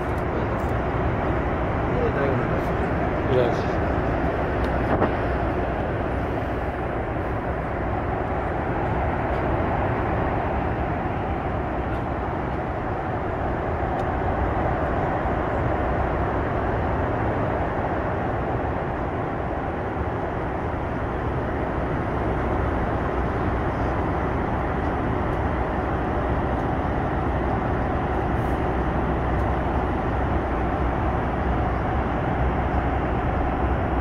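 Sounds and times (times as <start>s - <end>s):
airliner cabin airflow and engine noise: 0.0s - 34.0s.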